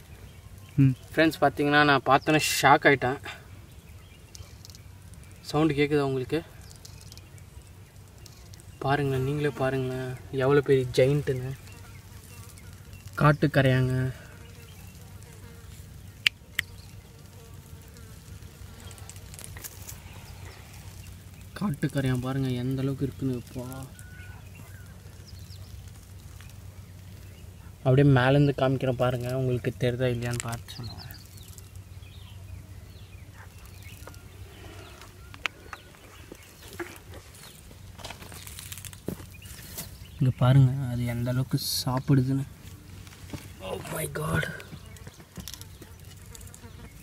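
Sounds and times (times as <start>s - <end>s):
faint bird chirps: 0.0s - 29.7s, 30.4s - 37.7s
faint insect buzz: 0.0s - 47.0s
termites rustling over leaves: 0.0s - 47.0s
sharp clicks: 4.3s - 5.2s.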